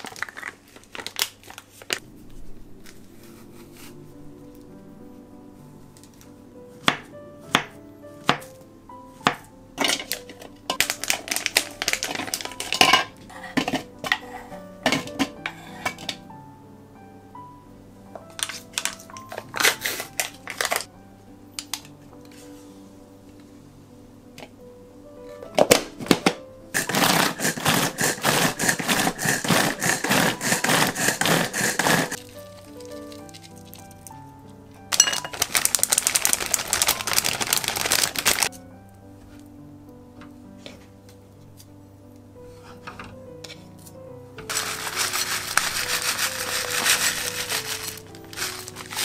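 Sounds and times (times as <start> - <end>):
plastic pack crinkling: 0.0 - 2.0, 9.8 - 14.3, 18.3 - 20.9, 25.6 - 34.2, 34.9 - 38.5, 44.5 - 49.0.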